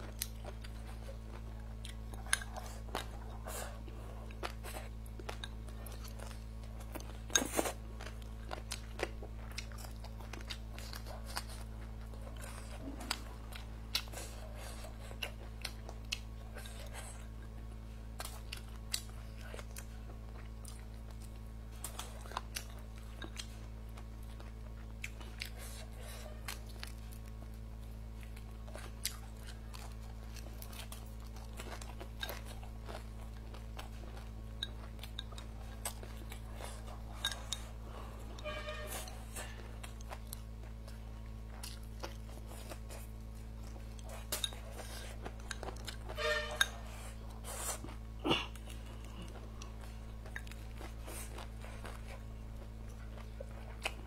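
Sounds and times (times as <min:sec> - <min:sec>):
chewing and crunching: 0:00.0 - 0:54.0
steady low hum: 0:00.0 - 0:54.0.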